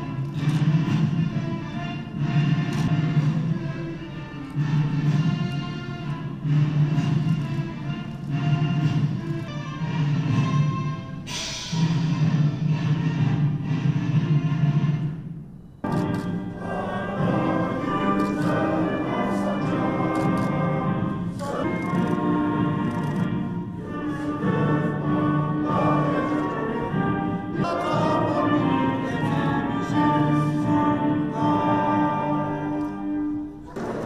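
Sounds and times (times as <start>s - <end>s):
orchestra playing anthem: 0.0s - 34.0s
choir singing: 16.0s - 33.4s.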